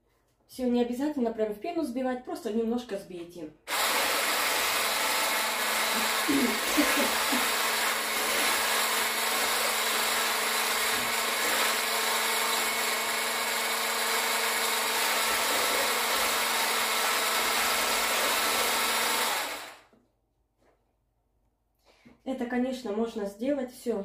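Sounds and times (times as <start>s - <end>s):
stick blender whisking: 3.7s - 19.8s.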